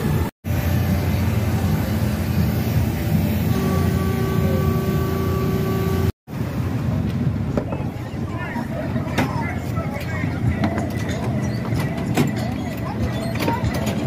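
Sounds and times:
ride machinery droning: 0.0s - 6.7s
steady higher tone: 0.5s - 6.1s.

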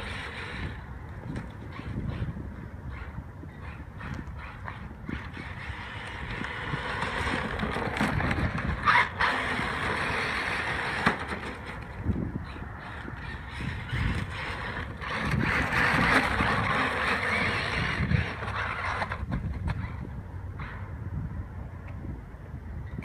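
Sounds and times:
toy car motor and gears whining: 0.0s - 0.8s, 3.0s - 20.1s.

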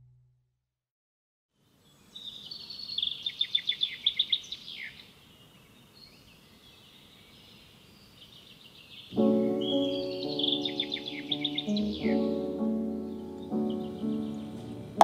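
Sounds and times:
outdoor background noise: 1.6s - 9.3s
birds singing: 1.7s - 15.0s
sharp repeated bird chirps: 8.3s - 12.2s.

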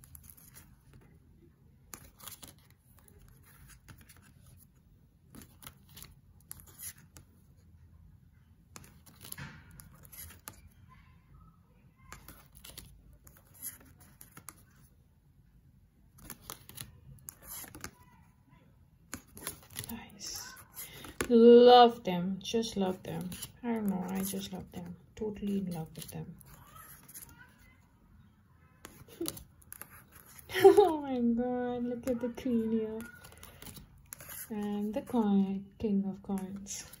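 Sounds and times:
cards sliding and tapping: 1.9s - 4.7s, 8.7s - 10.6s, 16.2s - 18.0s, 19.1s - 19.9s, 20.6s - 21.3s, 33.0s - 35.2s.

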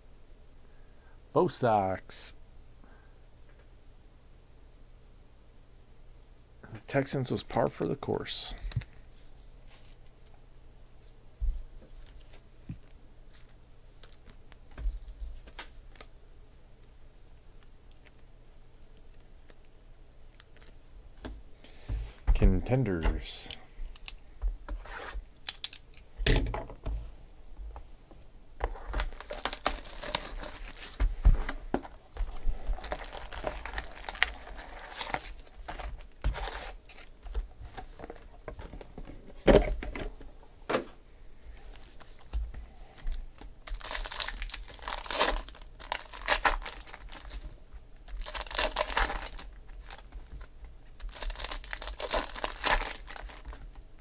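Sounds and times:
packaging crinkling: 28.7s - 31.6s, 32.2s - 38.3s, 43.4s - 53.8s
foil packs tearing: 28.8s - 31.0s, 32.3s - 37.2s, 43.6s - 47.5s, 48.1s - 50.4s, 51.0s - 53.7s.

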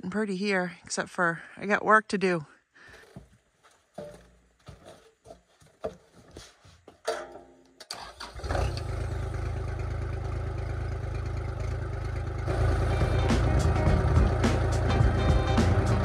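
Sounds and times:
clunks and knocks: 3.9s - 8.0s
engine cranking: 7.8s - 16.0s
diesel engine running: 8.0s - 16.0s.

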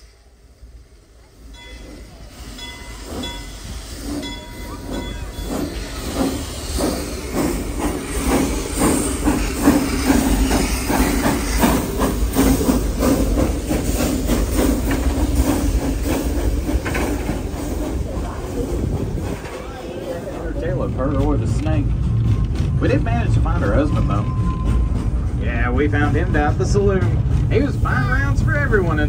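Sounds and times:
hissing steam: 0.0s - 20.7s
steam locomotive chuffing: 0.0s - 29.0s
train wheels running: 0.0s - 29.0s.

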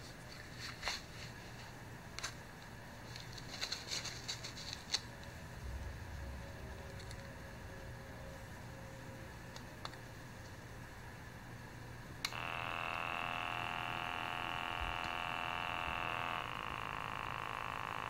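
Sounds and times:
air pump buzzing: 12.3s - 18.0s.

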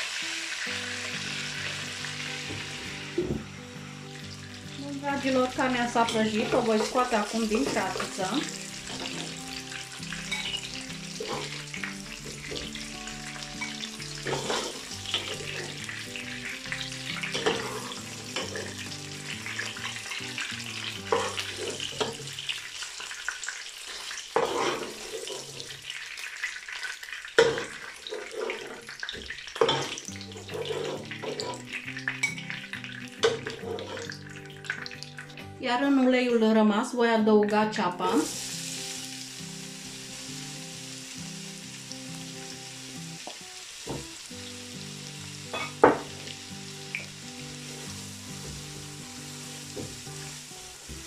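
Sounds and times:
background music: 0.0s - 22.8s, 29.4s - 51.0s
meat sizzling in hot oil: 0.0s - 35.5s, 38.0s - 51.0s
utensil knocking and scraping pot: 33.3s - 34.2s.

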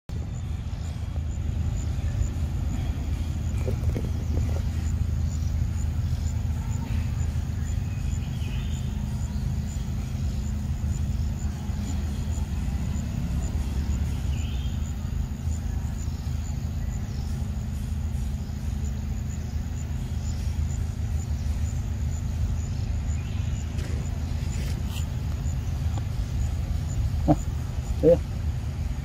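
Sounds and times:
steady low rumble: 0.1s - 29.0s.

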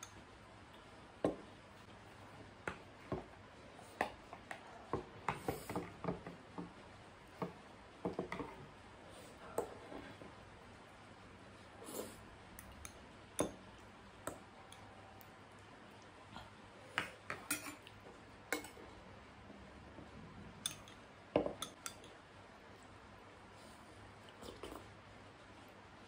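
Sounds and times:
cutlery clinking against bowls: 12.6s - 13.6s, 17.0s - 18.8s, 20.6s - 22.2s.

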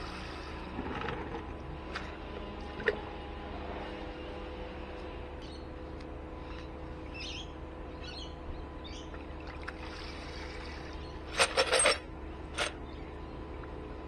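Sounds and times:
liquid sloshing and splashing: 9.1s - 11.0s
bolts clattering: 11.3s - 12.8s.

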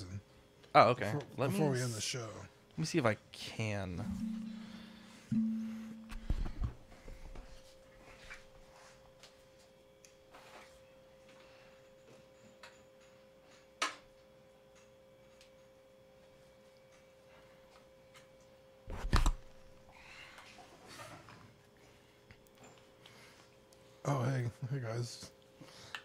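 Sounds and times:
faint steady tone: 4.1s - 7.1s.

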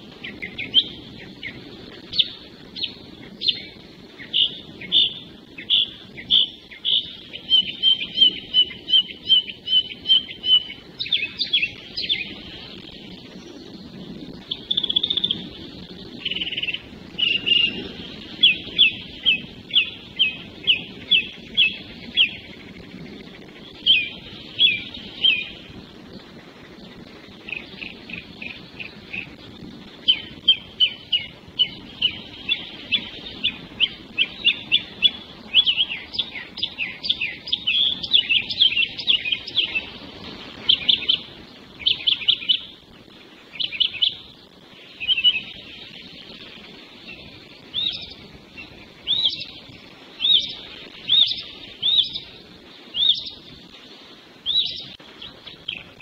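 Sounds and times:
songbirds singing: 0.0s - 56.0s.

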